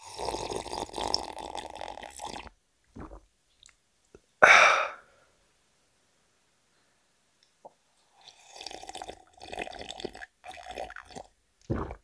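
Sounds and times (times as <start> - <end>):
person slurping tea: 0.0 - 3.2, 8.2 - 12.0.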